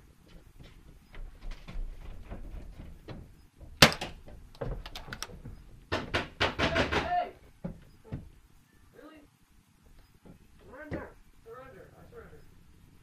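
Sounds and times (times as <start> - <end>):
paintball gun firing: 3.8 - 4.2.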